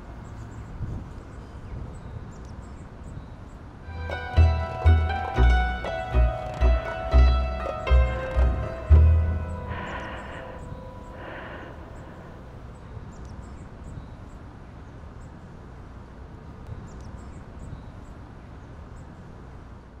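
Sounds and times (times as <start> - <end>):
plucked-string chord ringing: 3.9 - 12.4
steady low rumble: 3.9 - 12.8.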